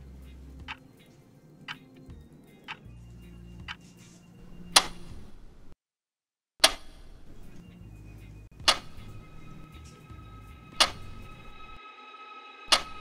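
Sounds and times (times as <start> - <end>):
wall clock ticking: 0.6 - 0.8, 8.6 - 9.1.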